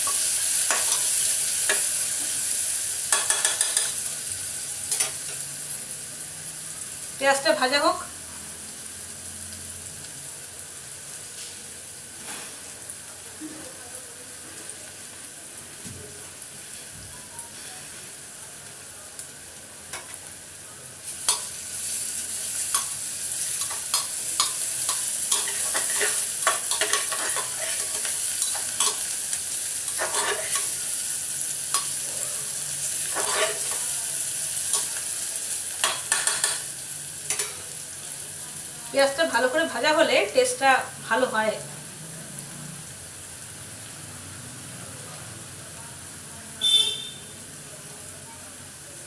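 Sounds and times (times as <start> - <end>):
onions sizzling in oil: 0.0 - 49.0
utensil scraping a pan: 24.9 - 29.0, 29.9 - 30.7, 33.1 - 33.9.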